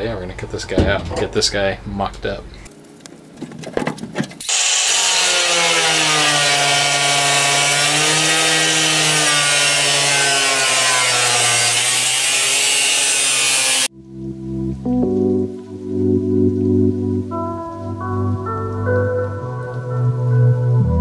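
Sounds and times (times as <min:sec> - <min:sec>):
power tool cutting sheet steel: 0:04.4 - 0:13.9.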